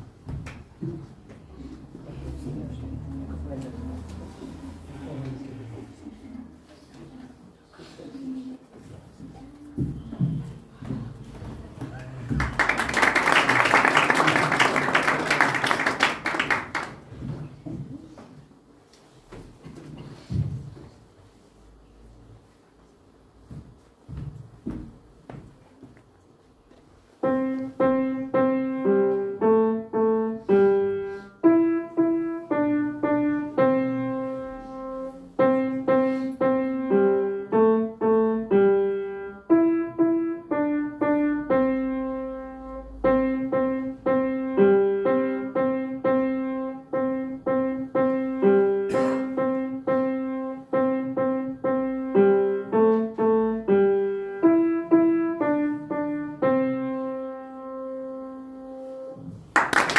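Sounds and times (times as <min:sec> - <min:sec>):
piano melody: 0:27.2 - 0:59.4.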